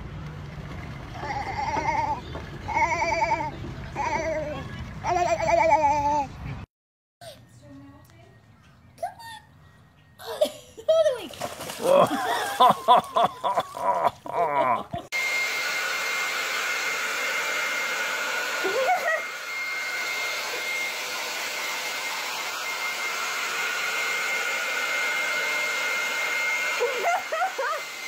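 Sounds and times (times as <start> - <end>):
people laughing: 11.8 - 15.1, 26.8 - 27.9
hair dryer blowing: 15.0 - 28.0.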